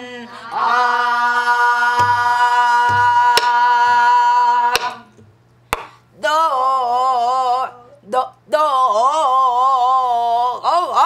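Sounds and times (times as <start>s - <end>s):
woman singing long notes: 0.0s - 5.1s, 6.2s - 11.0s
low drum thumps: 2.9s - 4.0s.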